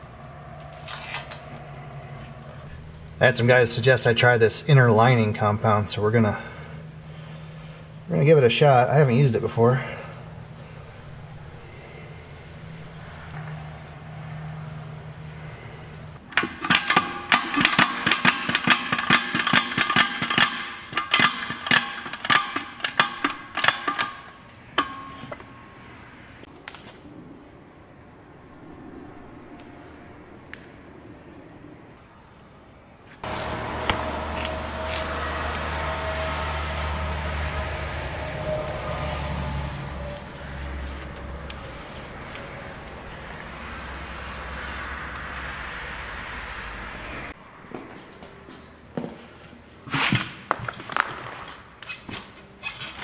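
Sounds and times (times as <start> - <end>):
metallic clanks on steel wheel: 16.2 - 25.7, 33.2 - 39.0
low steady hum: 33.2 - 47.6.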